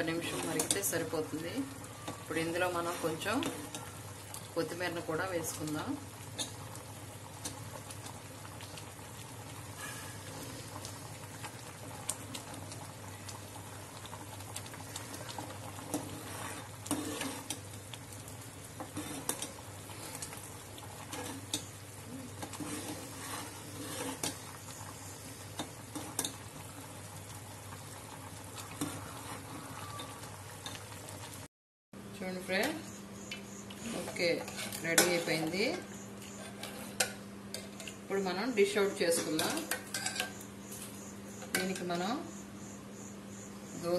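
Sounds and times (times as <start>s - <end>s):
chutney bubbling in pot: 0.0s - 31.5s
ladle scraping metal pot: 15.8s - 17.6s, 18.8s - 20.3s, 21.0s - 21.6s, 22.4s - 24.6s, 33.8s - 35.6s.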